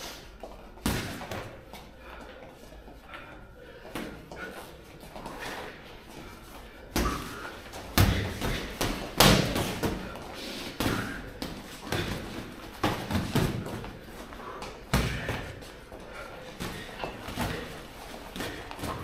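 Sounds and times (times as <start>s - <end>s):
gloved punches thudding: 7.9s - 10.1s.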